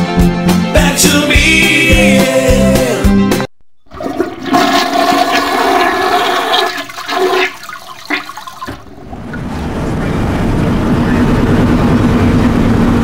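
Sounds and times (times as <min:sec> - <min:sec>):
song playing: 0:00.0 - 0:03.5
rushing water flush: 0:03.9 - 0:09.7
road noise inside moving car: 0:09.2 - 0:13.0.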